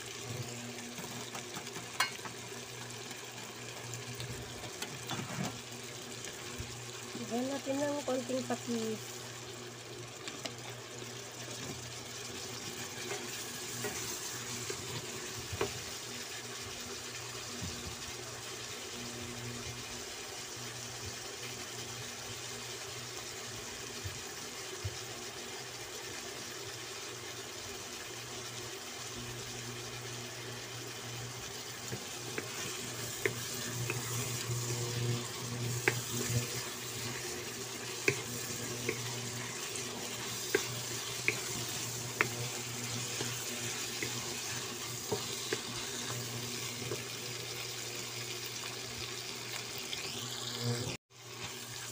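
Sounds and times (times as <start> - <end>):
chicken sizzling in oil: 0.0 - 51.9
spatula scraping pan: 31.9 - 47.1.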